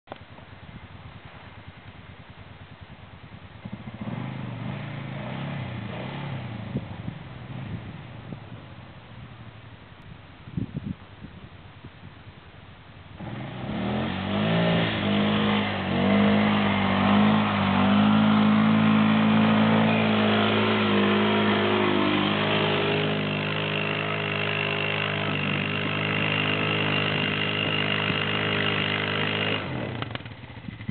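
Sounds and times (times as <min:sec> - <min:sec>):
atv engine revving: 0:01.0 - 0:10.0, 0:12.4 - 0:30.9.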